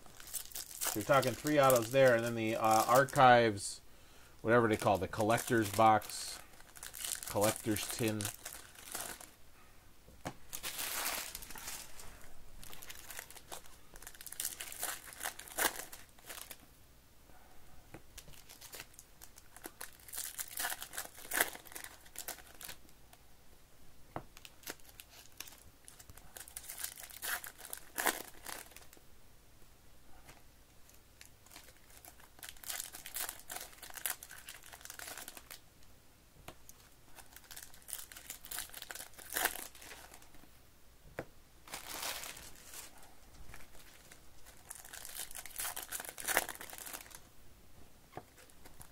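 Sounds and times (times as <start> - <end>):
foil wrappers crinkling and tearing: 0.1 - 3.4, 4.5 - 9.4, 10.5 - 16.6, 18.2 - 22.8, 24.4 - 29.0, 31.2 - 35.6, 36.8 - 40.4, 41.7 - 42.9, 43.5 - 47.3.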